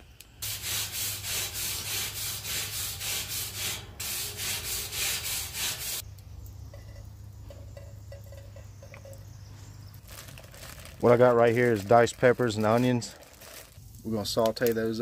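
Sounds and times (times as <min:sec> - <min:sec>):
grill brush scrubbing grill grate: 0:00.4 - 0:06.0.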